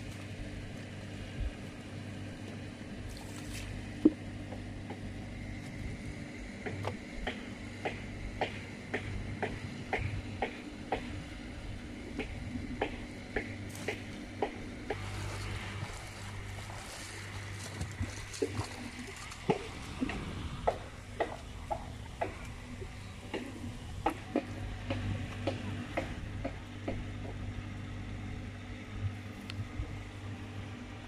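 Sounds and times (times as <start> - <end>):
steady low hum: 0.0 - 31.0
shallow water splashing: 3.0 - 4.2, 14.8 - 24.5.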